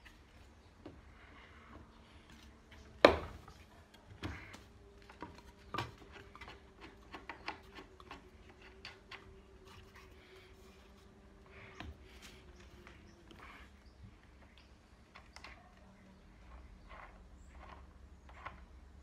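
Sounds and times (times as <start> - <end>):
wooden board knocking on jig: 3.0 - 3.4.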